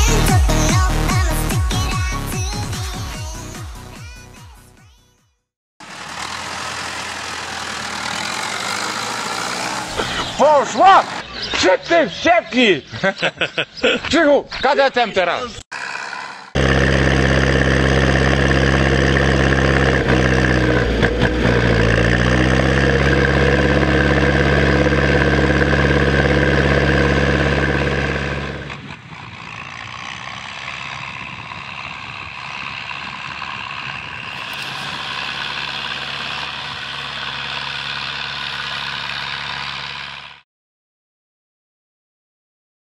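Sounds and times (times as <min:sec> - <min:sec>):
tractor diesel engine running: 0:05.8 - 0:11.4, 0:15.7 - 0:40.4.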